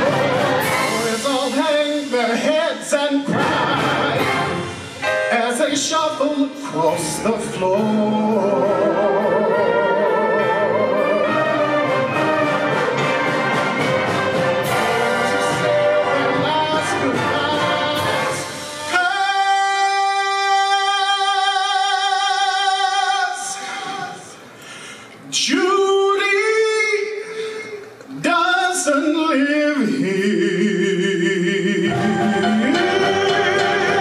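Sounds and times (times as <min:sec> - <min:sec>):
concert band playing: 0:00.0 - 0:21.3, 0:31.6 - 0:34.0.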